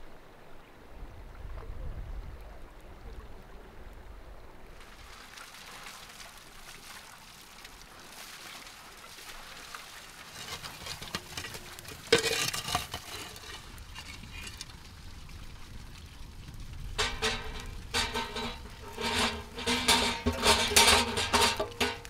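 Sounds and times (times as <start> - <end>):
fire crackling and hissing: 10.2 - 22.0.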